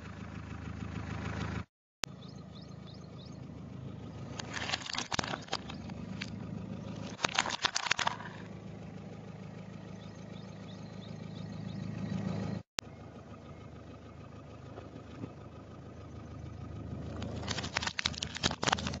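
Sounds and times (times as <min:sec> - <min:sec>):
car engine idling: 0:00.0 - 0:19.0
plastic toy cracking under tyre: 0:07.0 - 0:08.4, 0:17.2 - 0:19.0.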